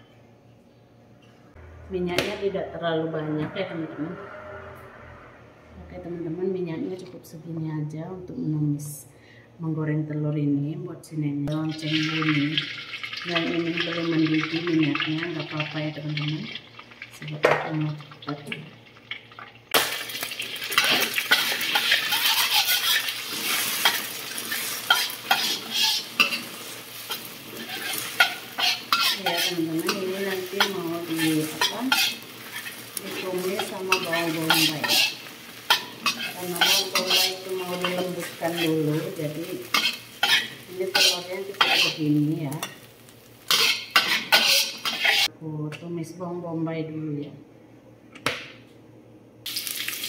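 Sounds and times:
egg sizzling in hot oil: 0:11.8 - 0:45.3, 0:49.5 - 0:50.0
metal spatula scraping wok: 0:20.7 - 0:42.9, 0:43.5 - 0:45.3.

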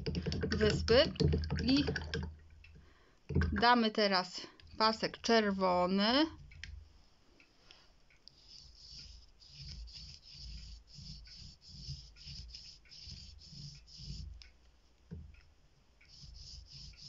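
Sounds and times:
paintbrush swishing across paper: 0:08.4 - 0:14.4, 0:16.1 - 0:17.0.

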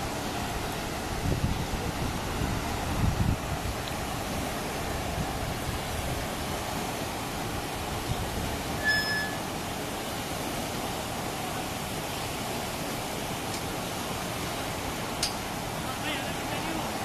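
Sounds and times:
churning water rushing: 0:00.0 - 0:17.0
short high tone: 0:08.8 - 0:09.5.

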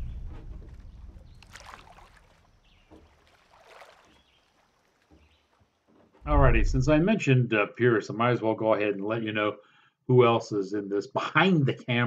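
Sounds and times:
low rumble: 0:00.0 - 0:01.6, 0:06.2 - 0:07.2
soft water sounds: 0:00.0 - 0:07.2.

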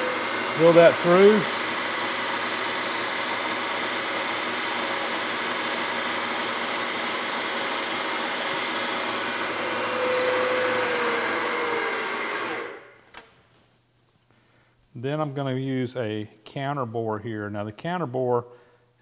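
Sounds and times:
milling machine drilling aluminium: 0:00.0 - 0:12.8.

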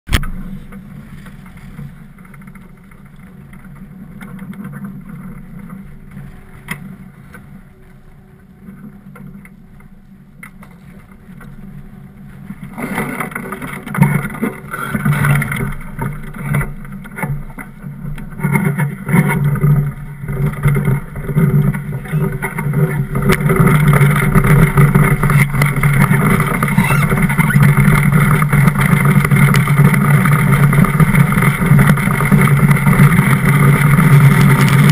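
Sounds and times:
steel runners rumbling over ice: 0:00.1 - 0:34.9.

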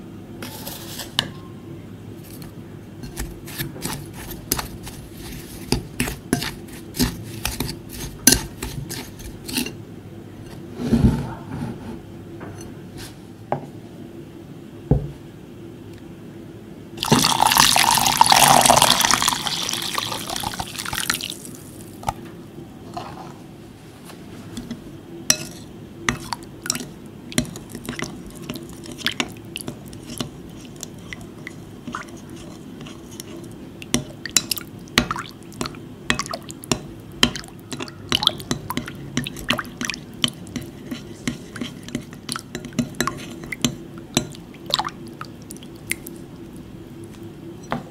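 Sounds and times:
spatula stirring liquid: 0:02.2 - 0:09.8, 0:24.6 - 0:46.6
water pouring into glass bowl: 0:17.0 - 0:21.6.

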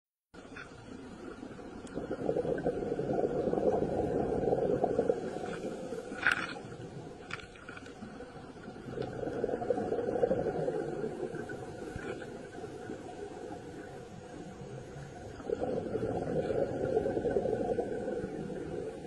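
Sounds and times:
faint clicks: 0:00.4 - 0:02.1
underwater bubbling wash: 0:00.8 - 0:07.4, 0:08.0 - 0:19.0.

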